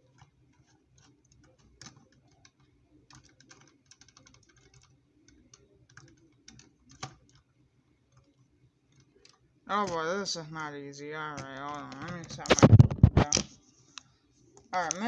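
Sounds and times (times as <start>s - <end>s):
plastic toy pieces clicking: 11.3s - 12.5s.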